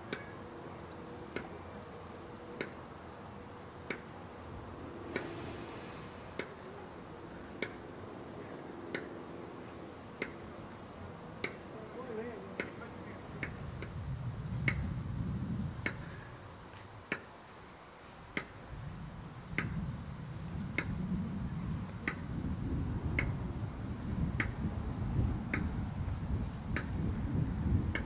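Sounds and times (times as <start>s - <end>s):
sharp ticks: 3.8s - 4.1s, 8.9s - 9.2s, 10.1s - 10.5s, 11.4s - 11.7s, 14.6s - 14.9s, 15.8s - 16.1s, 20.8s - 21.0s, 23.1s - 23.4s
low rumble: 4.1s - 8.8s.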